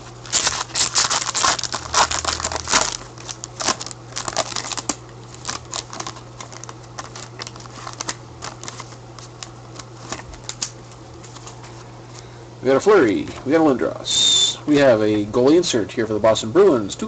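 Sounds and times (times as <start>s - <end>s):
rustling of wrapper and cards: 0.0s - 12.2s
wrapper tearing and crinkling: 0.1s - 10.8s.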